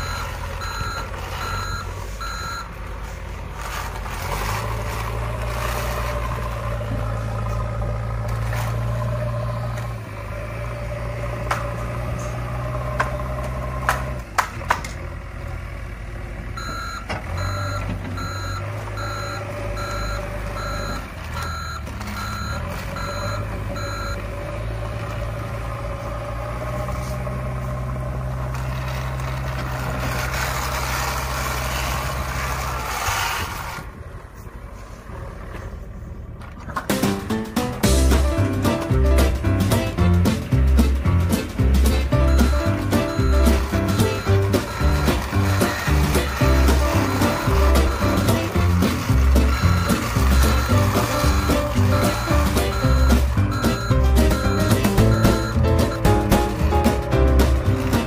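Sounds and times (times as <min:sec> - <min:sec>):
reversing beeps: 0:00.0 - 0:02.8, 0:16.6 - 0:24.2, 0:42.1 - 0:56.4
toy engine drone: 0:44.5 - 0:52.5.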